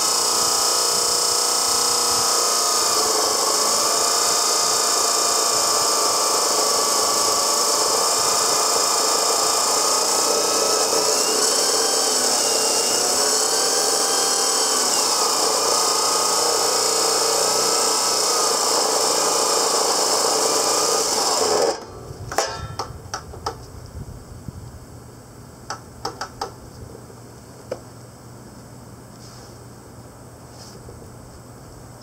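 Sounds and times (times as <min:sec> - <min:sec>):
chop saw grinding steel: 0:00.0 - 0:22.9.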